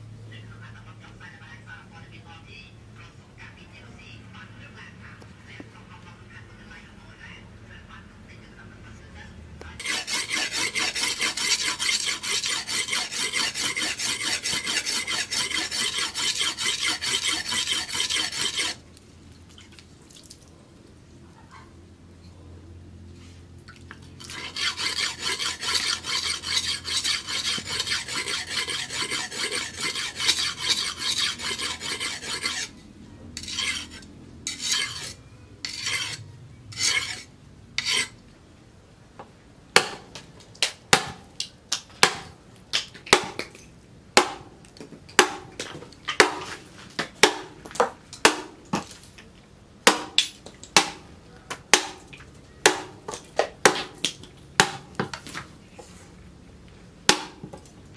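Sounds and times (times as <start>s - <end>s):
blade scraping on sharpening stone: 9.8s - 18.8s, 24.2s - 32.8s, 33.4s - 38.2s
billhook chopping bamboo pole: 39.8s - 43.5s, 44.2s - 44.5s, 45.1s - 48.9s, 49.8s - 55.3s, 57.1s - 57.6s.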